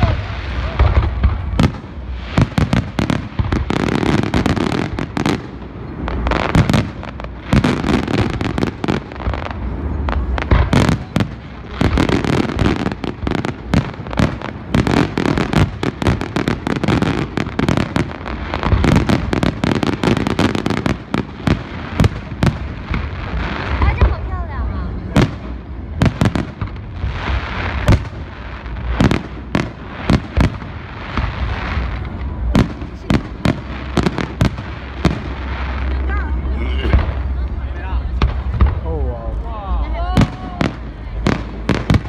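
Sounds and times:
firework crackling: 0.0 - 42.0.

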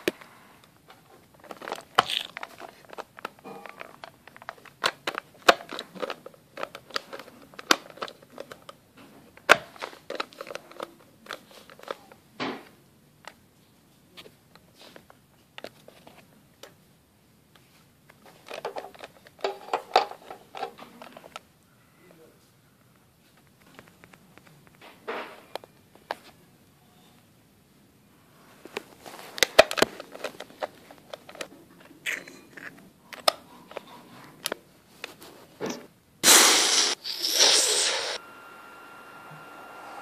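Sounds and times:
plastic toys clicking together: 1.4 - 8.8.

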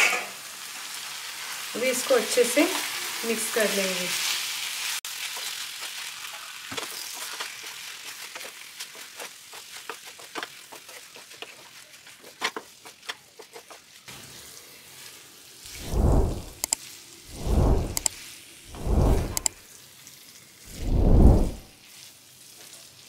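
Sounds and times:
noodles sizzling in a pan: 0.0 - 15.8, 19.6 - 20.8, 21.7 - 23.0
spatula scraping a pan: 5.4 - 14.1
deep whoosh: 15.7 - 16.6, 17.3 - 18.1, 18.7 - 19.5, 20.7 - 21.6.

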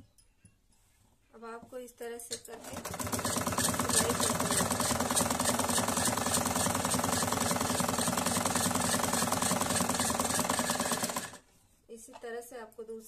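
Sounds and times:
sewing machine rattling: 2.5 - 11.4.

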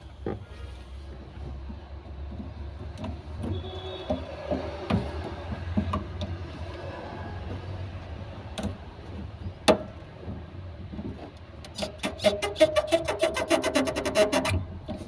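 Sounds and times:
scraping strokes: 11.8 - 15.0.

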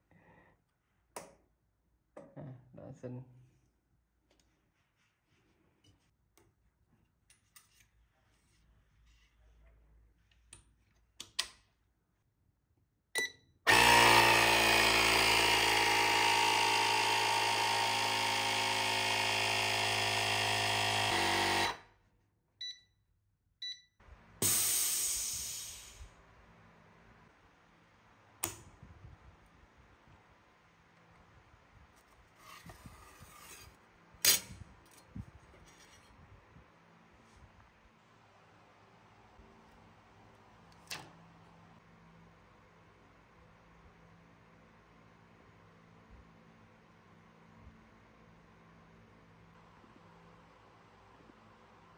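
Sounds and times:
laminating machine motor running: 13.7 - 21.8
hiss of air: 24.4 - 26.2.

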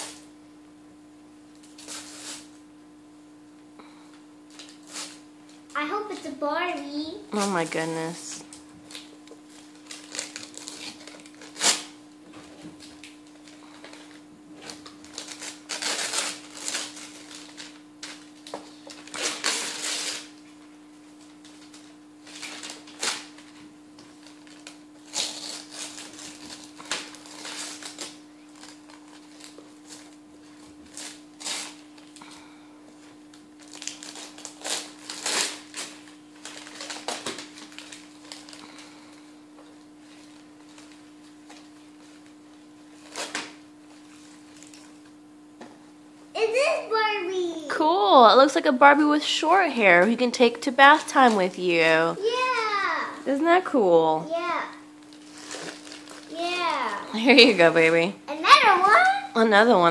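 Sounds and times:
faint steady hum: 0.0 - 59.9
wrapping paper ripping and rustling: 1.6 - 2.6, 4.5 - 45.2, 52.2 - 57.5.

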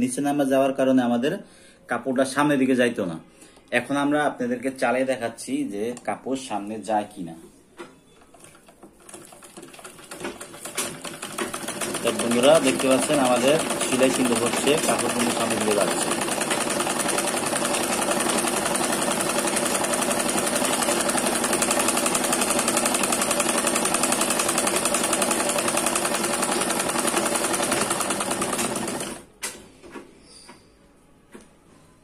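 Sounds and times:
sewing machine stitching: 8.3 - 29.6.

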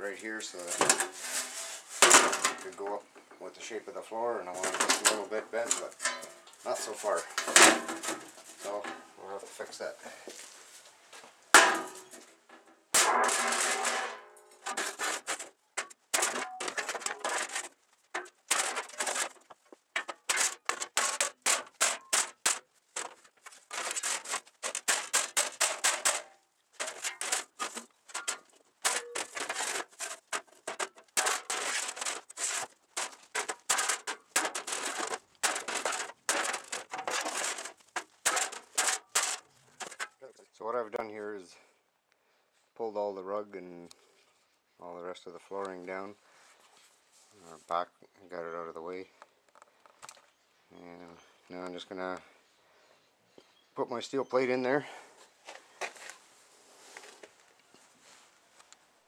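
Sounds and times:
sledgehammer pounding steel plate: 20.0 - 40.0.

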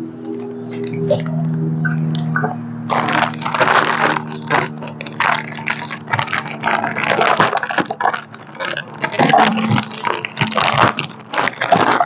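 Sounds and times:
plastic bag crinkling: 2.9 - 12.0.

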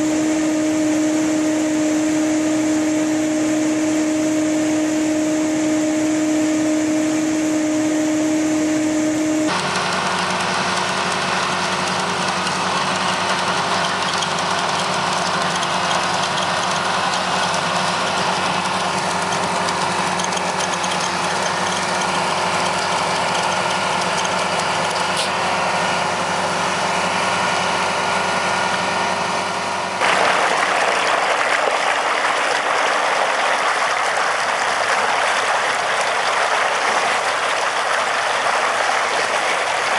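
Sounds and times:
trencher humming: 0.0 - 9.7
dredger engine running: 0.0 - 39.9
mud slurry gurgling from pipe: 30.0 - 39.9.

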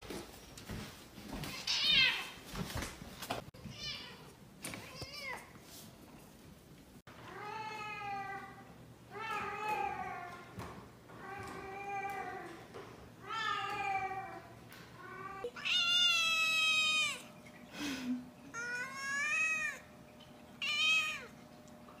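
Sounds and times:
cat meowing: 15.1 - 17.3, 20.6 - 21.4.

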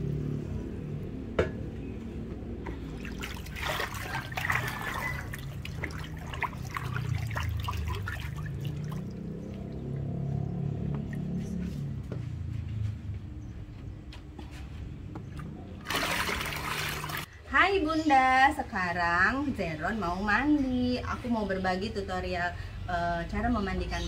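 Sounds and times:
water splashes and drips: 2.6 - 11.9, 15.3 - 17.3
hand swishing bath water: 2.8 - 10.4, 15.8 - 17.3.

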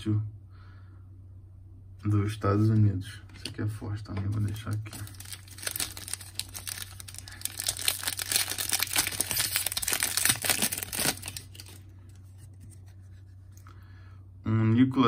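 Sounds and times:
foil pack tearing and crinkling: 4.6 - 11.9.

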